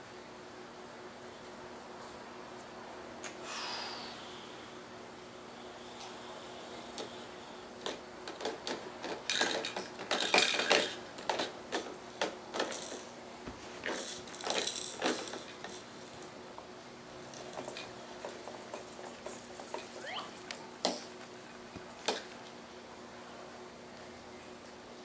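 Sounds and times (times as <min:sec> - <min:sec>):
plastic toys clicking and rattling: 0:07.8 - 0:13.1, 0:13.8 - 0:16.3.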